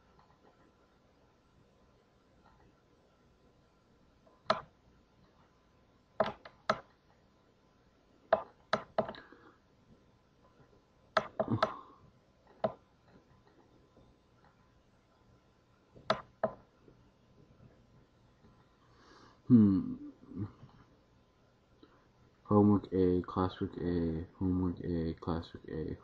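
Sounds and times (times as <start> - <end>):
computer clicks and taps: 4.3 - 4.7, 6.2 - 7.0, 8.3 - 9.2, 11.1 - 11.8, 12.5 - 13.7, 16.0 - 16.6.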